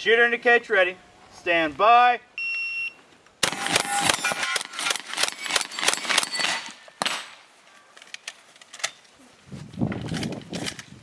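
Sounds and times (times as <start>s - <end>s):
steel targets ringing: 3.4s - 4.8s
shotgun firing rapidly: 3.4s - 7.4s.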